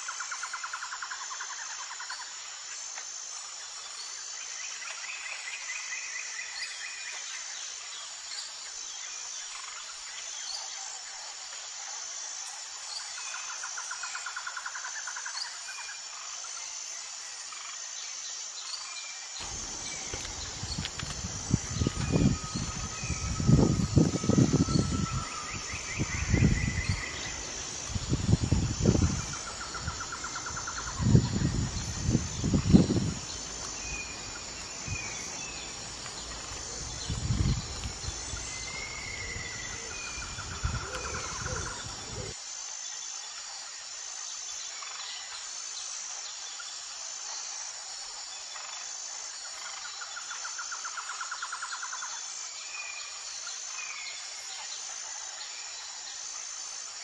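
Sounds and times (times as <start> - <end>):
pulsing insect chirp: 0.0 - 57.0
birds chirping and trilling: 19.4 - 42.3.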